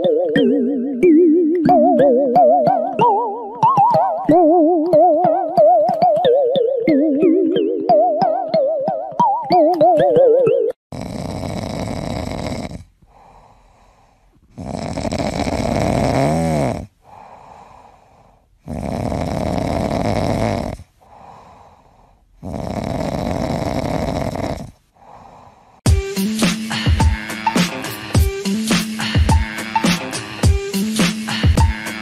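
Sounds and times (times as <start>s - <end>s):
cat snoring: 10.9s - 25.6s.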